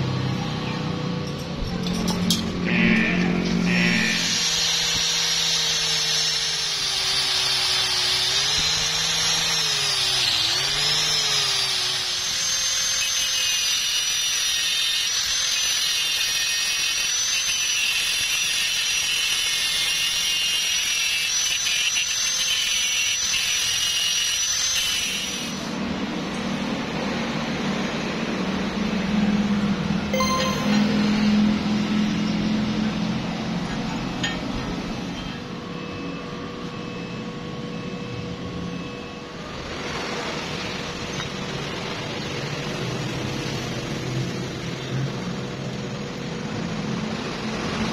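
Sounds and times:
wire brush grinder scraping metal: 1.8 - 25.6.

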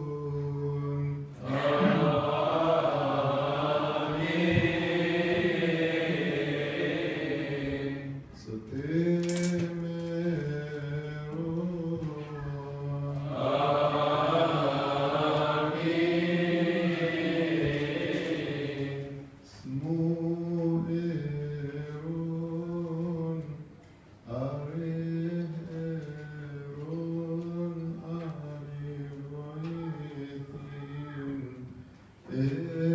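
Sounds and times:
man chanting into a microphone: 0.0 - 2.2, 8.0 - 13.8, 19.4 - 32.9.

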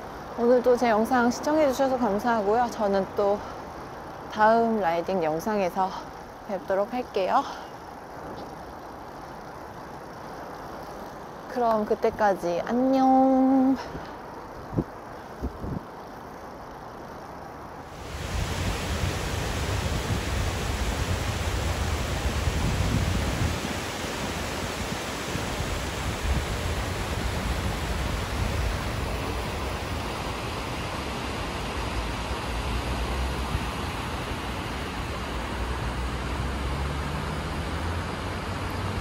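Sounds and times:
low wind rumble: 0.0 - 39.0
wind on microphone: 14.6 - 15.9, 17.9 - 36.7.

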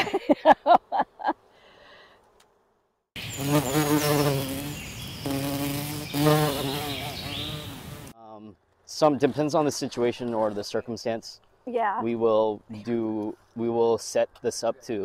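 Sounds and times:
bee buzzing: 3.2 - 8.2.

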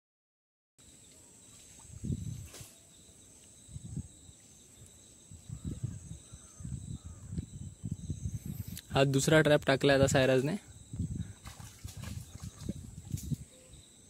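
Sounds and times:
high-pitched insect buzzing: 1.4 - 8.9.

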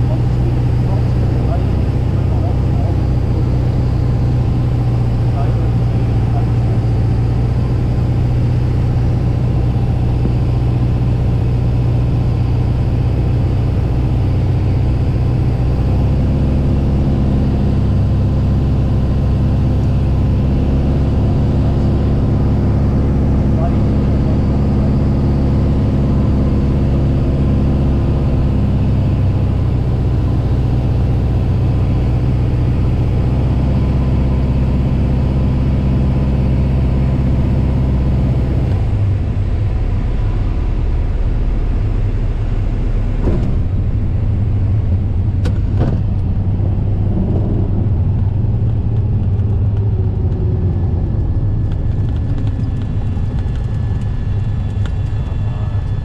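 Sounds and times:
aircraft engine and propeller: 0.0 - 56.0.

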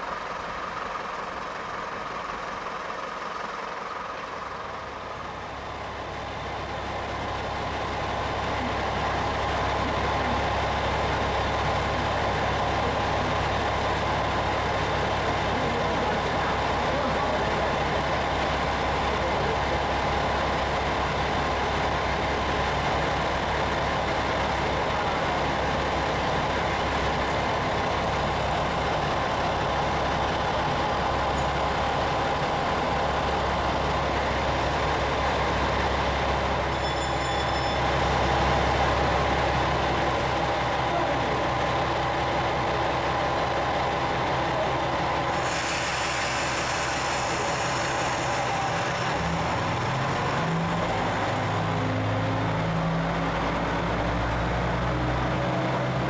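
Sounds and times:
engine idling: 0.0 - 36.6, 38.1 - 56.0
short high beep: 36.0 - 38.2
hiss: 45.3 - 49.8.

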